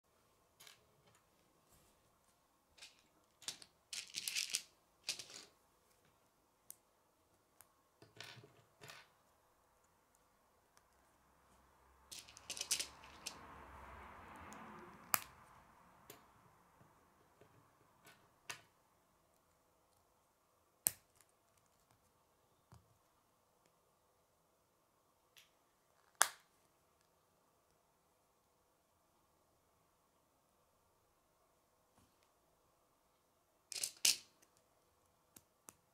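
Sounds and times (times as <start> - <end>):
soft rustle: 0.2 - 3.2
plastic pieces clicking and rattling: 2.8 - 5.6, 12.1 - 13.4, 33.7 - 34.5.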